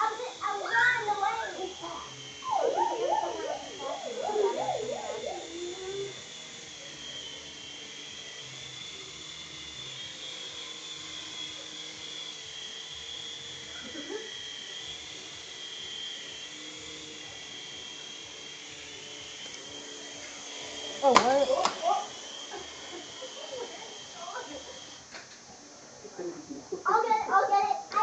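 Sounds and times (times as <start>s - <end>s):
toy helicopter motor whine: 0.0s - 28.0s.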